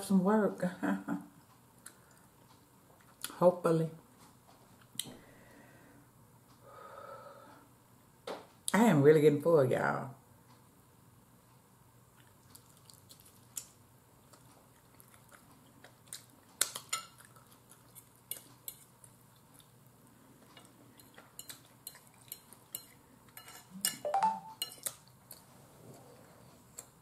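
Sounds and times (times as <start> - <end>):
quiet chewing: 1.4 - 3.4, 12.0 - 24.0, 24.6 - 27.0
fork clinking on plate: 21.4 - 24.9.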